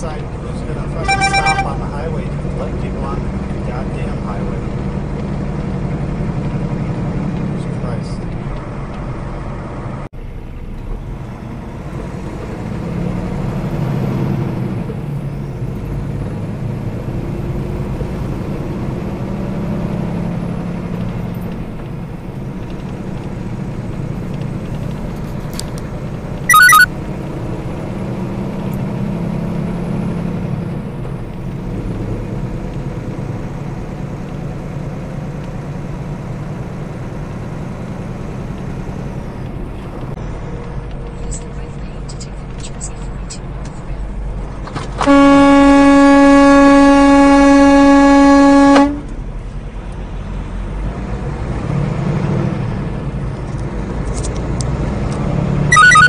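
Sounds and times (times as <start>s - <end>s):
diesel truck engine drone: 0.0s - 56.0s
road noise: 0.0s - 56.0s
loud high-pitched tone: 1.0s - 1.9s, 26.5s - 26.9s, 45.1s - 49.0s, 55.7s - 56.0s.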